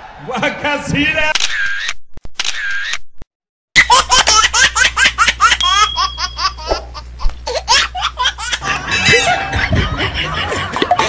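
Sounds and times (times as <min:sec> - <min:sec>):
crowd laughing: 0:08.4 - 0:11.0.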